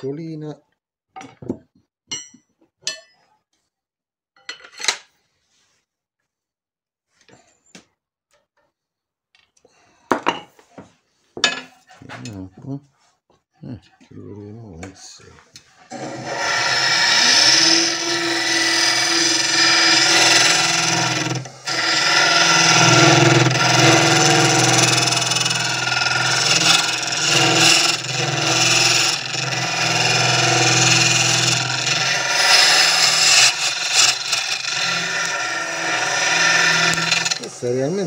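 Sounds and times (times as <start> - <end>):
lathe humming: 15.9 - 38.0
lathe tool scraping wood: 15.9 - 38.0.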